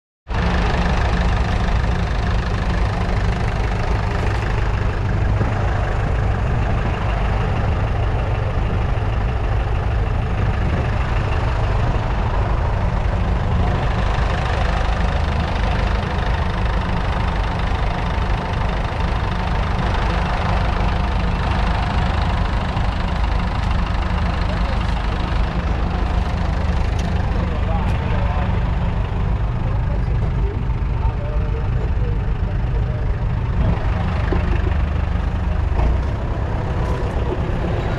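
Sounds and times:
diesel engine idling: 0:00.3 - 0:37.9.

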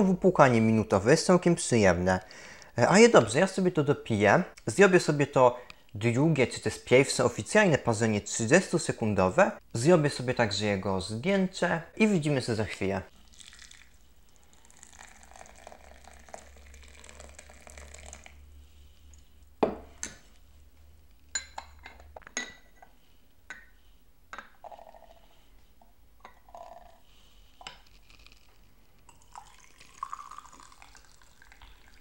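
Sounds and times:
hot water pouring: 0:13.1 - 0:18.4, 0:24.6 - 0:25.2, 0:26.4 - 0:27.0, 0:29.1 - 0:32.0
tea pouring through strainer: 0:13.1 - 0:19.3, 0:24.6 - 0:25.3, 0:26.3 - 0:32.0.

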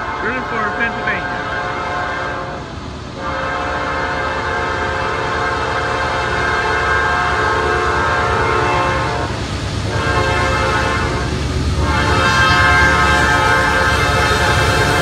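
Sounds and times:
locomotive air horn blasts: 0:00.0 - 0:02.6, 0:03.2 - 0:15.0
train rumble: 0:00.0 - 0:15.0.

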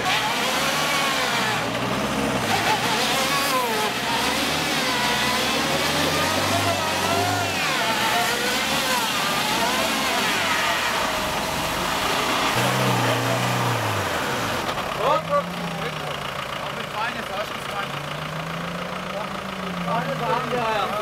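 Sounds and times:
van engine revving: 0:00.0 - 0:21.0.

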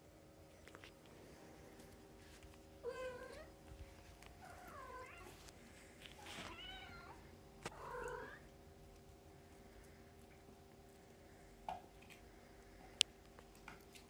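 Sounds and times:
cat meowing: 0:06.2 - 0:08.4.

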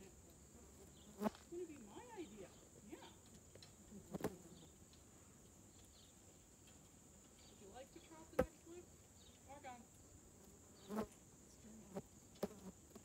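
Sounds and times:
high-pitched insect buzz: 0:09.6 - 0:13.0.

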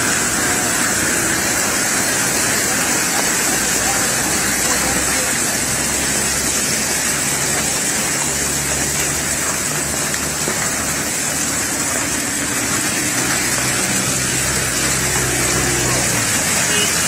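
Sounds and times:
heavy rain and hail on cars: 0:00.0 - 0:17.0.

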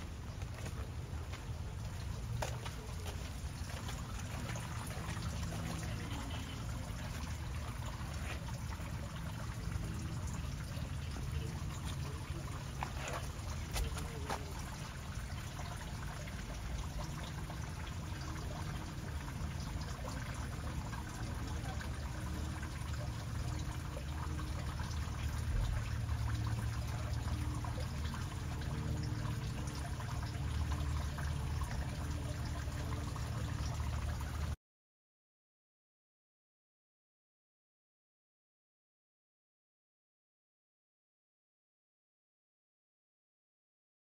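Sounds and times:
water trickling and pouring: 0:00.0 - 0:34.6.

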